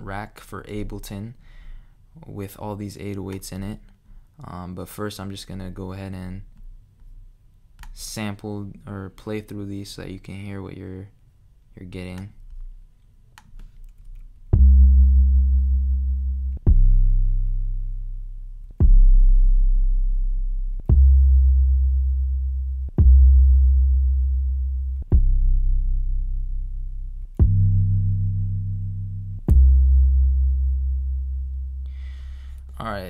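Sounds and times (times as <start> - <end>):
deep bass tone: 14.5 - 33.0
kick drum hits: 14.6 - 15.0, 18.8 - 19.3, 27.4 - 27.8.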